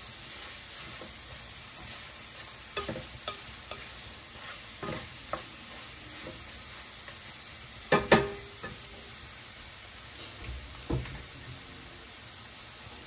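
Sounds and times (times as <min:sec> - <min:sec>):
wooden spatula scraping a pan: 0:00.0 - 0:08.8
clams sizzling in a pan: 0:00.0 - 0:13.0
spatula knocking against pan: 0:02.8 - 0:03.8, 0:07.9 - 0:08.8.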